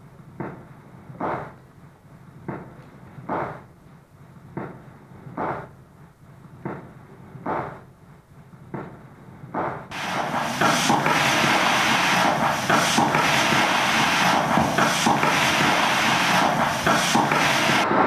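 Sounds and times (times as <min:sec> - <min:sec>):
loud amplified hiss: 0:04.5 - 0:18.0.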